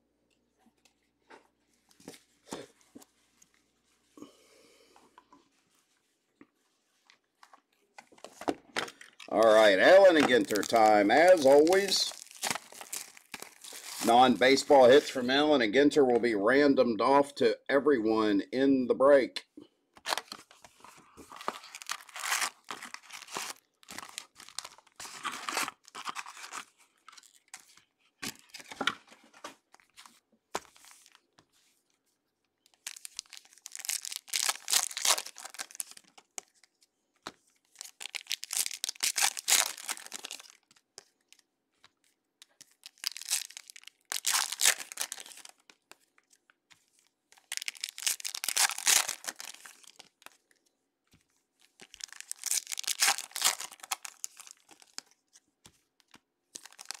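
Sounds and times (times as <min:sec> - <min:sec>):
foil wrappers tearing and crinkling: 0:08.9 - 0:15.3, 0:21.3 - 0:28.7, 0:32.7 - 0:36.5, 0:37.7 - 0:41.4, 0:42.4 - 0:45.9, 0:47.0 - 0:50.5, 0:51.6 - 0:55.2, 0:56.0 - 0:57.0.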